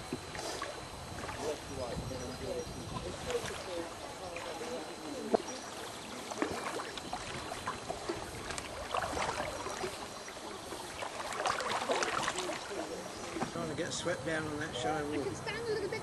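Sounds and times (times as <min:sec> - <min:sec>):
paddle splashing in water: 0:00.0 - 0:02.0, 0:02.8 - 0:13.7.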